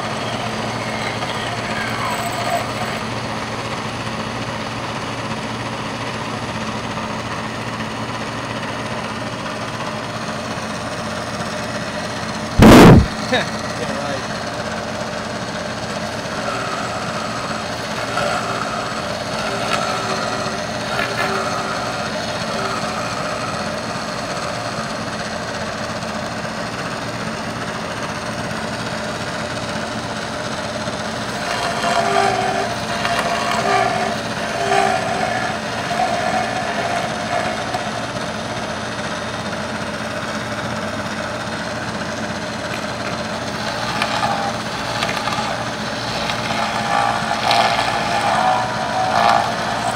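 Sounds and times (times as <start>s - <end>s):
pulsing pitched whine: 0.0s - 4.0s, 11.6s - 25.5s, 28.9s - 49.9s
milling machine cutting metal: 0.0s - 5.8s, 7.2s - 26.7s, 27.5s - 49.9s.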